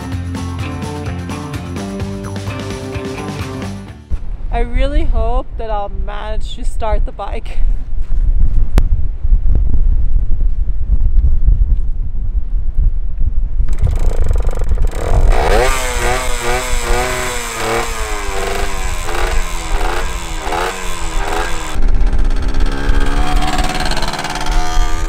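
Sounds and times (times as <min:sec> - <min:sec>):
two-stroke dirt bike engine revving: 0:13.7 - 0:25.0.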